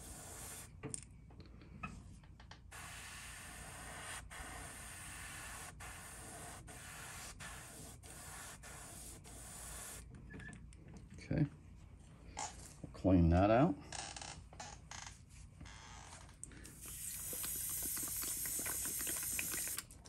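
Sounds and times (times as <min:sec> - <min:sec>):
airbrush spraying hiss: 0:00.0 - 0:00.7, 0:02.7 - 0:10.0, 0:16.8 - 0:19.8.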